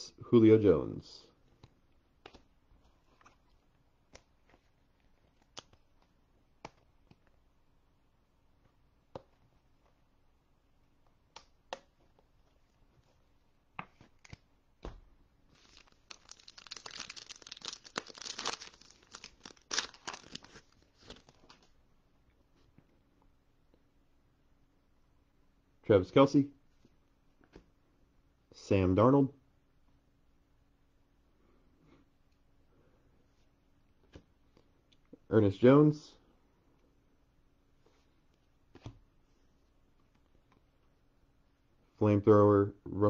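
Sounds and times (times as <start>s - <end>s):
foil pack tearing and crinkling: 15.6s - 21.5s.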